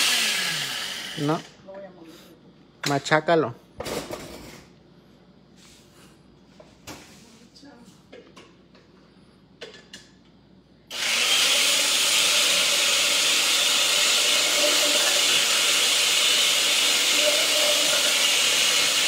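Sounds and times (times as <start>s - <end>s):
blender motor running: 0.0s - 1.5s, 10.9s - 19.0s.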